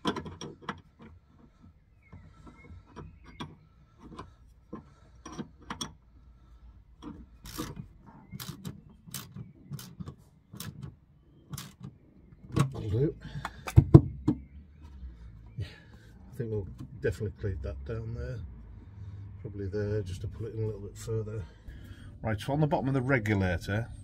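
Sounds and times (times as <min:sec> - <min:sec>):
small metallic clicks: 0:00.0 - 0:06.1, 0:07.0 - 0:15.0.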